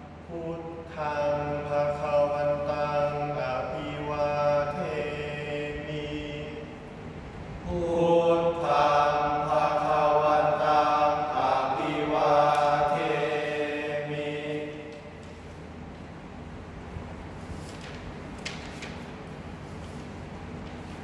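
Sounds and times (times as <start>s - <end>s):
men chanting verse: 0.3s - 7.0s, 7.6s - 15.3s.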